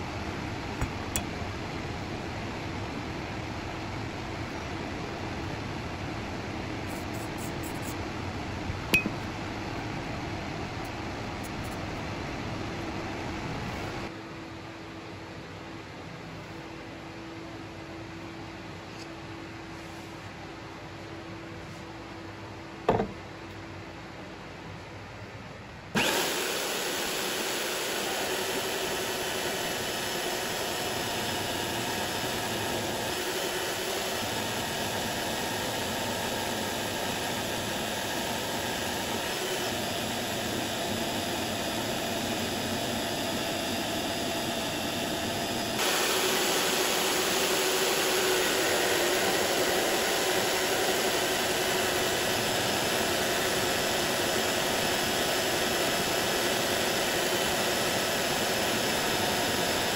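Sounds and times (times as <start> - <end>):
power saw cutting aluminum: 26.0 - 59.9.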